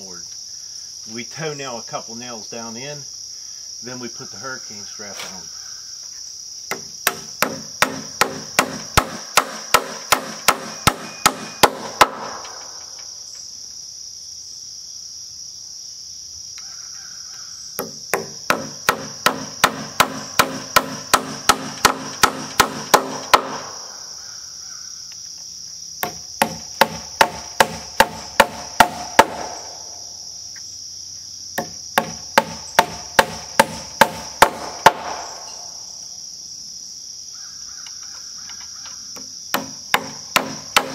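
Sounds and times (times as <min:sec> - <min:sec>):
hammer striking nails: 0:06.7 - 0:12.7, 0:17.8 - 0:23.7, 0:26.0 - 0:29.6, 0:31.6 - 0:35.2, 0:39.2 - 0:40.9.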